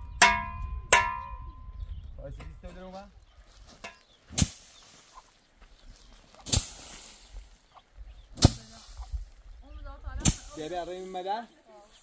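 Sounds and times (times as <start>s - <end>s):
short hiss: 6.4s - 7.4s
sharp slaps or knocks: 8.4s - 8.7s.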